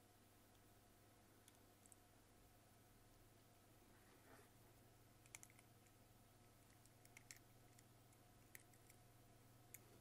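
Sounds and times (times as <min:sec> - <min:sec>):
faint steady hum: 0:00.0 - 0:10.0
small plastic parts clicking: 0:05.2 - 0:06.0, 0:06.6 - 0:09.0.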